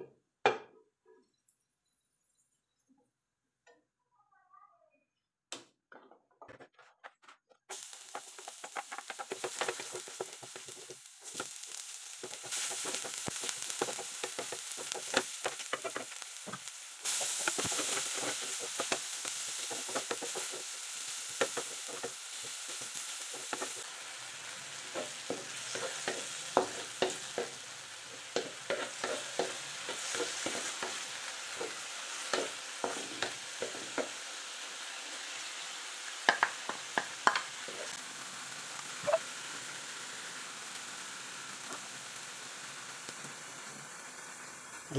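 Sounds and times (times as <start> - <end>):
wooden spatula scraping a pan: 6.5 - 20.7, 24.8 - 34.2
onion and tomato sizzling in oil: 7.7 - 44.9.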